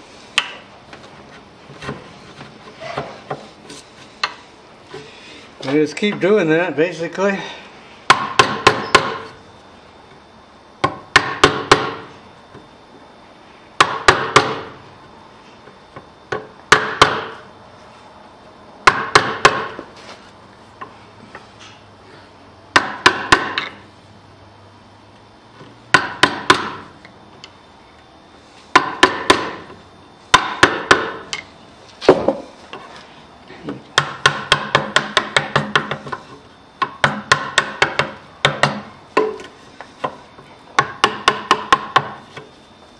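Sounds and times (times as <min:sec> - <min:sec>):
hammer tapping a chisel: 0:34.0 - 0:36.2, 0:36.8 - 0:40.2, 0:40.8 - 0:42.5.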